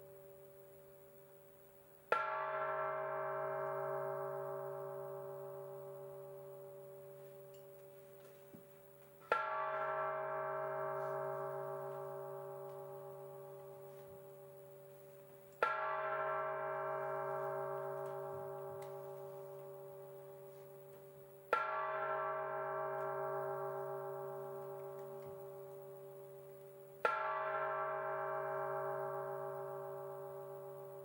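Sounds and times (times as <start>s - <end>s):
bell-like metallic strikes: 2.1s - 8.4s, 9.2s - 31.0s.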